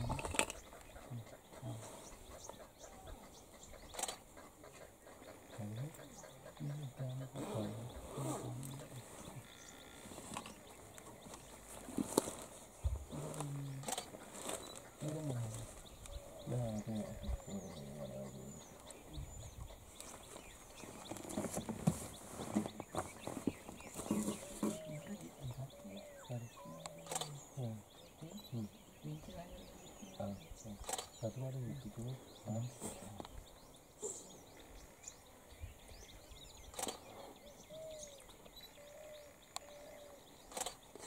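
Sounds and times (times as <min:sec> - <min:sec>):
faint low murmuring voice: 0:00.0 - 0:33.4
small bird chirping: 0:00.0 - 0:41.0
sharp clicks: 0:03.9 - 0:04.2, 0:13.4 - 0:14.2, 0:26.8 - 0:27.4, 0:30.8 - 0:31.2, 0:36.7 - 0:37.1, 0:40.5 - 0:41.0.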